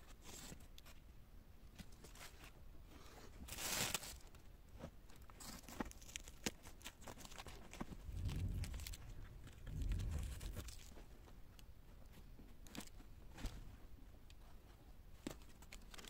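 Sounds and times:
small scattered crackles: 3.4s - 14.5s, 15.1s - 16.0s
plastic bag crinkling: 5.2s - 11.1s.

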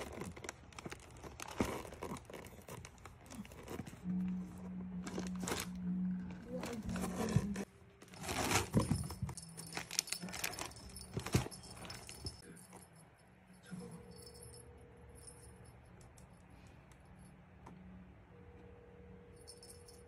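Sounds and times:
paper rustling: 6.4s - 12.4s.

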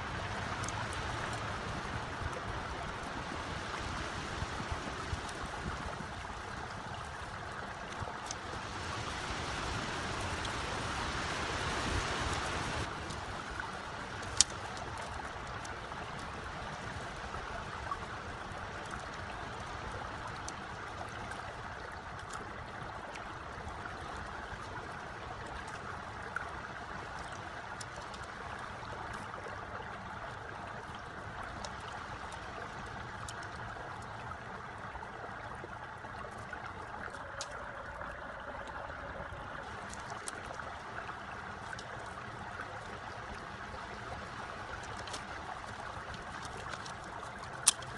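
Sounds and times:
stream running water: 0.0s - 47.9s.

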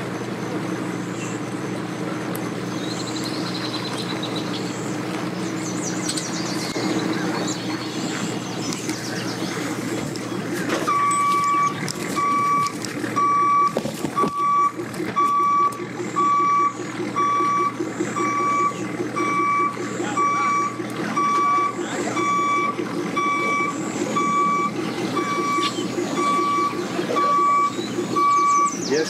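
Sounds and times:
pickup truck engine running: 0.0s - 29.0s
reversing alarm beeping: 10.8s - 29.0s.

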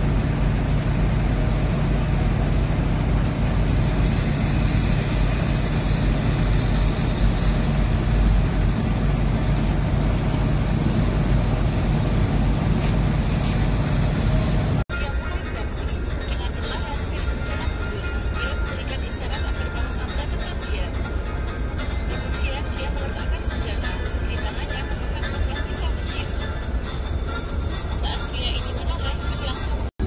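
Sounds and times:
road and tyre noise: 0.0s - 14.9s
bus engine drone: 0.0s - 30.0s.

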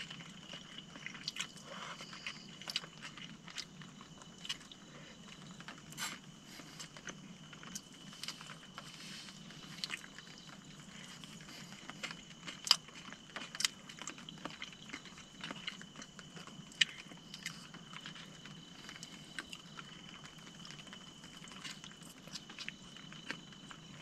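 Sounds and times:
person chewing: 0.0s - 24.0s.

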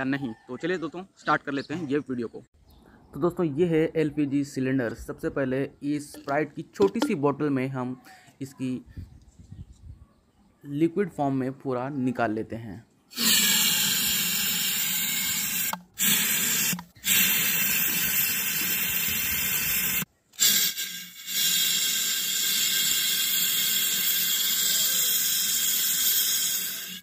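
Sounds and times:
gas can hissing: 13.1s - 27.0s.

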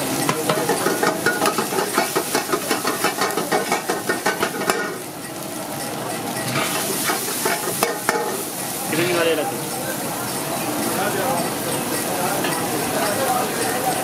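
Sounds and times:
oil sizzling: 0.0s - 14.0s
metal ladle scraping wok: 0.2s - 5.1s, 6.4s - 9.4s.

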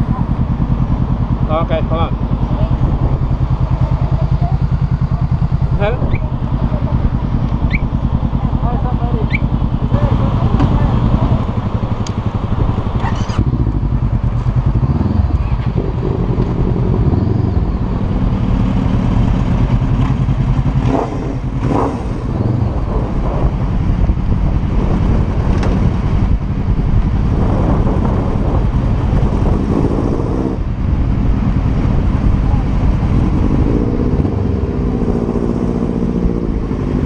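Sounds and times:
motorcycle engine revving: 0.0s - 37.0s.

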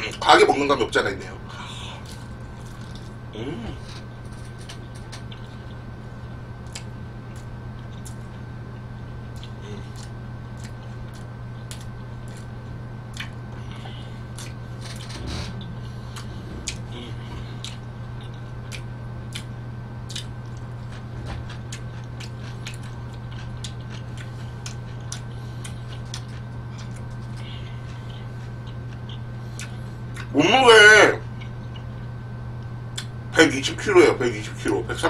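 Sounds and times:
low electrical hum: 0.0s - 35.0s
chewing with wet mouth clicks: 4.6s - 5.8s, 6.6s - 8.4s, 9.2s - 12.5s, 13.1s - 14.6s, 15.7s - 16.8s, 17.5s - 30.3s, 31.4s - 31.9s, 32.6s - 33.2s.

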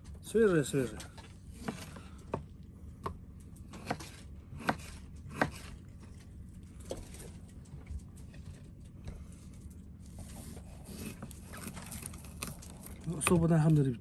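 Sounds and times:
steady low hum: 0.0s - 14.0s
knife chopping on cutting board: 1.6s - 5.8s.

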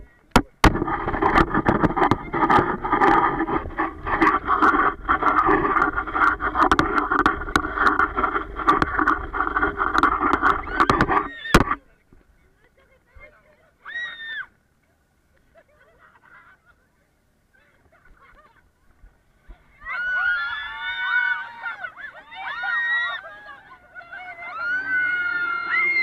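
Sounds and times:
vehicle rattling and jolting: 0.0s - 11.8s
wind on microphone: 0.0s - 11.8s
people shrieking and laughing: 19.6s - 26.0s.

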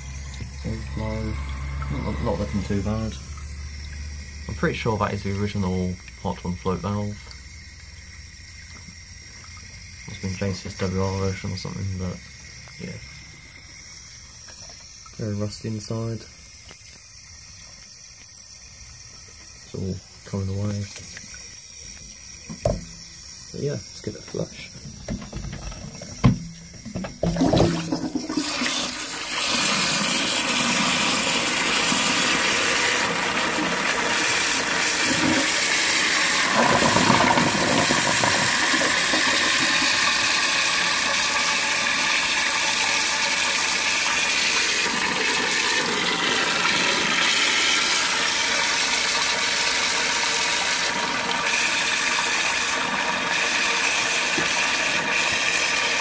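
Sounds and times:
toilet flushing water rushing: 0.0s - 17.3s, 18.3s - 56.0s
toilet cistern knocks: 22.5s - 23.0s, 25.0s - 28.2s.

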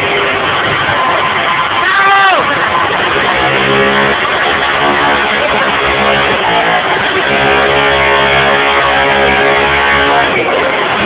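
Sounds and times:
loud electric guitar music: 0.0s - 11.0s.

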